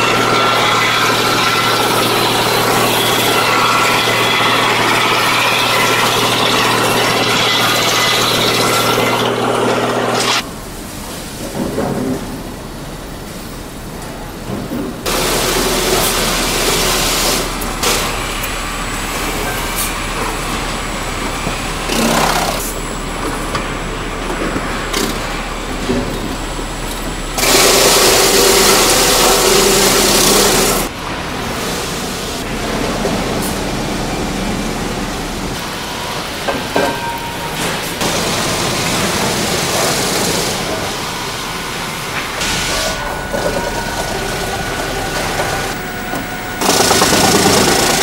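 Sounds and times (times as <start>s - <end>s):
sawmill machinery clattering: 0.0s - 48.0s.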